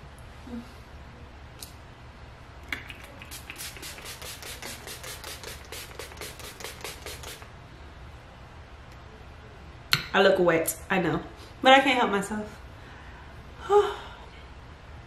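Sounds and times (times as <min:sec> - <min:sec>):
spray bottle click: 0:02.7 - 0:07.4
pump spray bottle hissing: 0:02.7 - 0:07.5.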